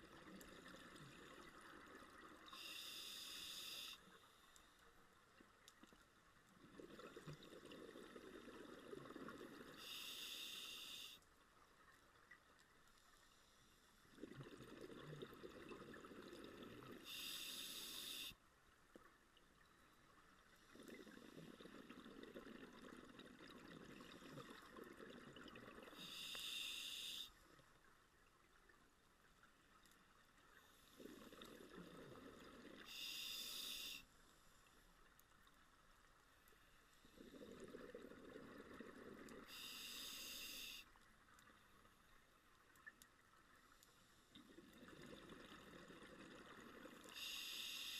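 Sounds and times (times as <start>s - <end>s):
scuba regulator breathing: 2.5s - 4.4s, 9.7s - 11.2s, 17.0s - 18.4s, 25.9s - 27.4s, 32.8s - 34.1s, 39.4s - 40.9s, 47.1s - 47.9s.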